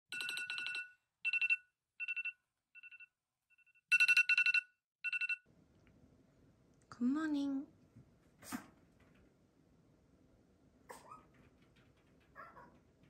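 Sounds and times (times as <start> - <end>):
phone alarm electronic trilling: 0.1 - 5.4.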